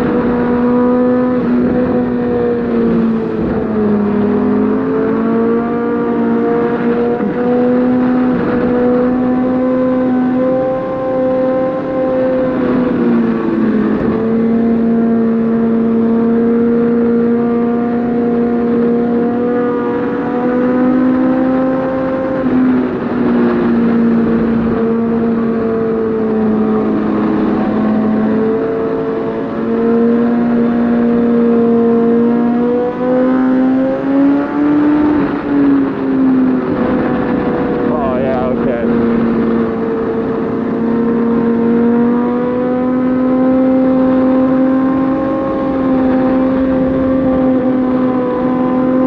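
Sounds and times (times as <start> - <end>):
motorcycle engine at speed: 0.0 - 49.0.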